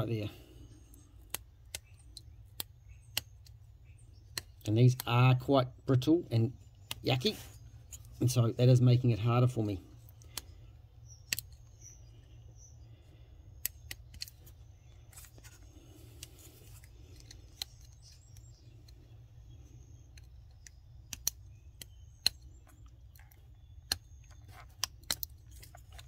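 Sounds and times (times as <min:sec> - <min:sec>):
metal tool clicking in plastic connector: 0:00.9 - 0:03.6, 0:11.2 - 0:11.8, 0:13.6 - 0:14.5, 0:16.2 - 0:19.0, 0:20.0 - 0:26.0.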